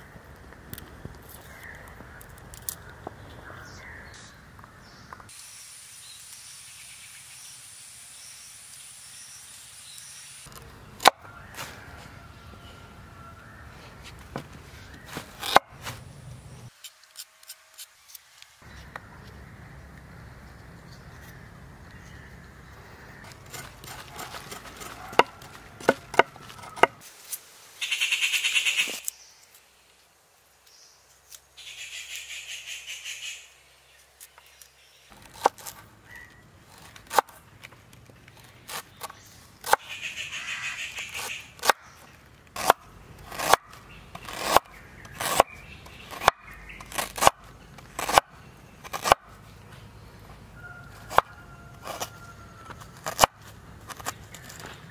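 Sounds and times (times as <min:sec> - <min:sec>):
knife scraping ginger skin: 0:14.9 - 0:16.0, 0:16.7 - 0:18.4, 0:23.2 - 0:27.4, 0:34.2 - 0:37.4, 0:40.9 - 0:49.4, 0:51.0 - 0:54.9.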